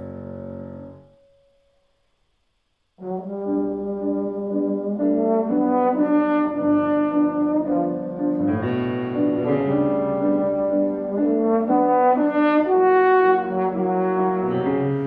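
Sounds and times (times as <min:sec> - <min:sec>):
piano accompaniment: 0:00.0 - 0:01.9, 0:03.0 - 0:15.0
slide trombone melody: 0:03.0 - 0:15.0.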